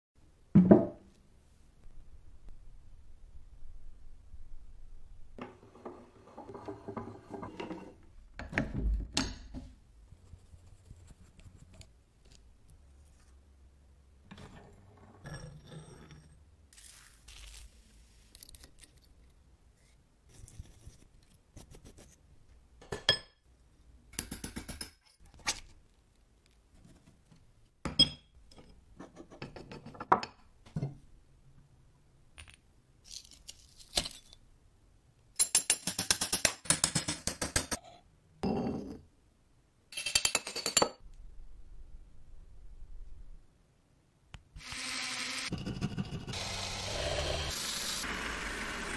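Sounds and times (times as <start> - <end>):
metal parts clinking and scraping: 18.2 - 19.3, 32.4 - 34.4.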